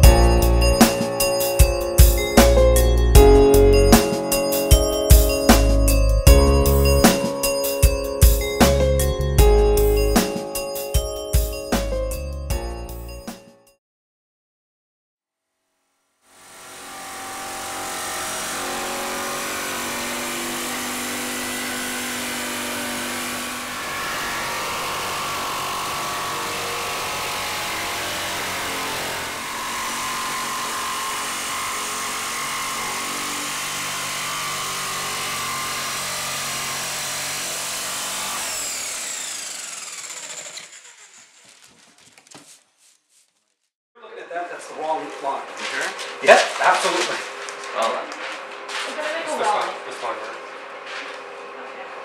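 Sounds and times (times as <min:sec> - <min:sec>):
jigsaw cutting plywood: 0:16.3 - 0:42.3.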